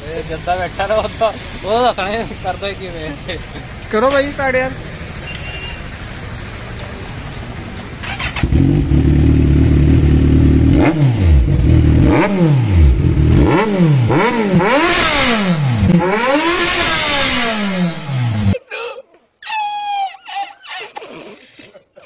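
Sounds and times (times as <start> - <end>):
motorcycle engine revving: 4.4 - 18.6.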